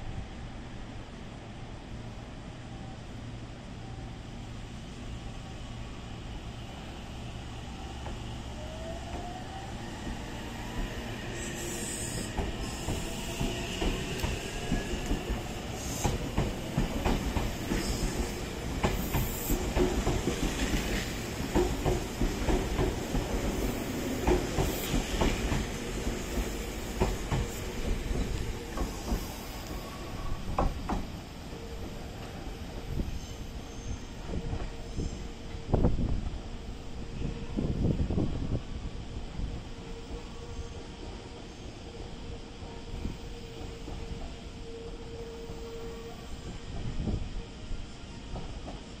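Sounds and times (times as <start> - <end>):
train wheels clicking over rails: 9.1 - 31.2.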